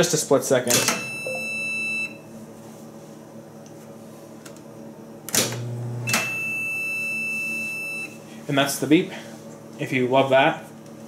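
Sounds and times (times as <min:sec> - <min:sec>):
microwave low hum: 0:00.0 - 0:11.0
microwave beeping: 0:00.8 - 0:02.3, 0:05.4 - 0:08.2.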